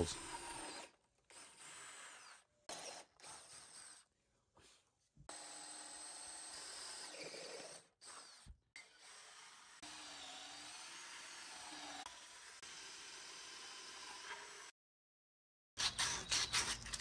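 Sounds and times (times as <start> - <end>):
cordless drill boring into wood: 0.0 - 4.0, 5.3 - 14.7.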